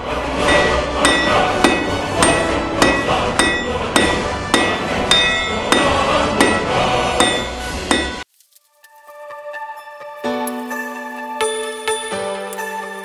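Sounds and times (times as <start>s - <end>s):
hammer ringing on anvil: 0.4s - 8.2s.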